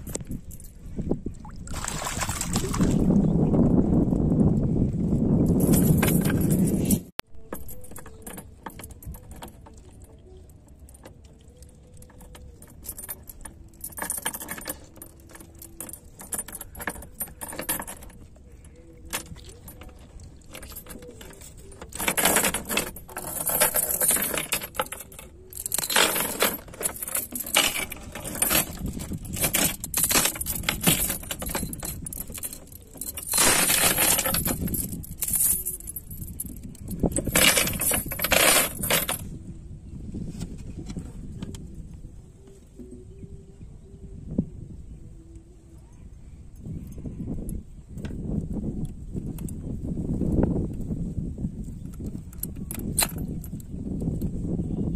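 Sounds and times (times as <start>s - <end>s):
chain links clinking: 5.4s - 39.4s, 51.6s - 54.2s.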